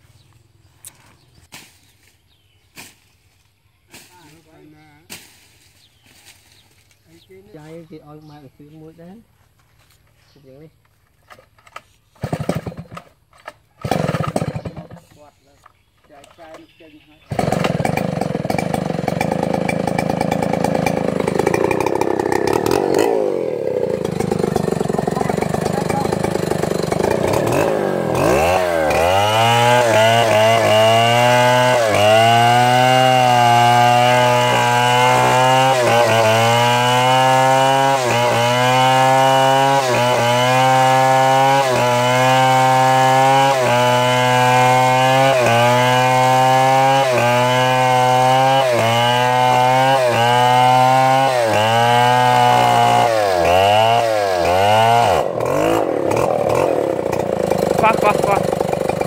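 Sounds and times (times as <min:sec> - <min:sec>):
chainsaw cutting wood: 0:11.3 - 0:15.3, 0:17.3 - 0:59.0.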